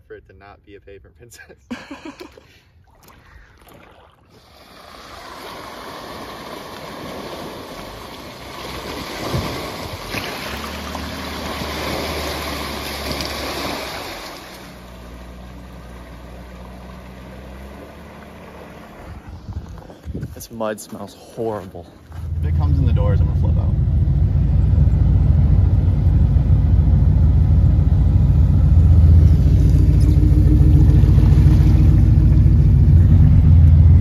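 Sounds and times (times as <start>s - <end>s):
water splashing around tyres: 2.9s - 19.9s, 28.6s - 33.8s
low engine hum: 7.3s - 20.3s, 22.0s - 34.0s.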